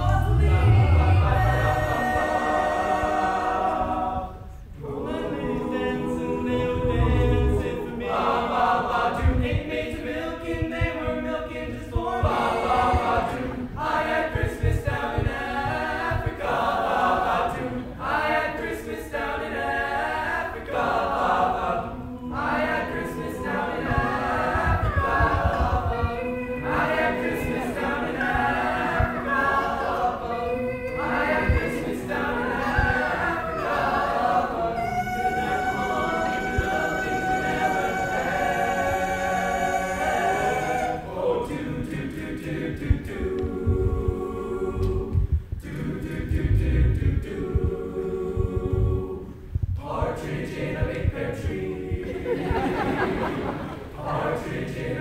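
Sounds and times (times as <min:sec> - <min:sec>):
boys choir singing a cappella: 0:00.0 - 0:55.0.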